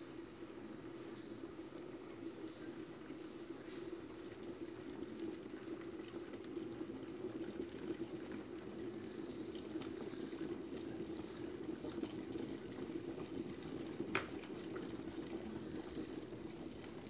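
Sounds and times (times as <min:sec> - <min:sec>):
electric kettle heating: 0:00.0 - 0:17.0
kettle switch click: 0:14.1 - 0:14.4.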